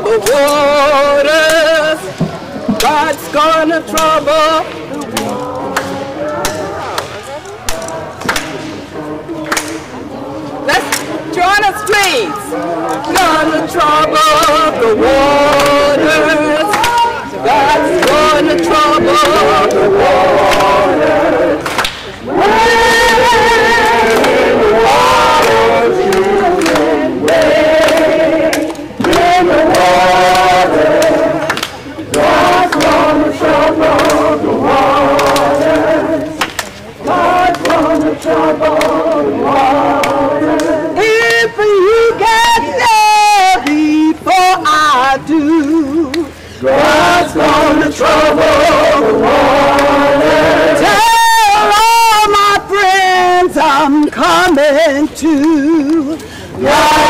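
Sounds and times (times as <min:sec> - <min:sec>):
person singing with vibrato: 0:00.0 - 0:07.0, 0:37.1 - 0:57.0
group singing unaccompanied: 0:00.0 - 0:57.0.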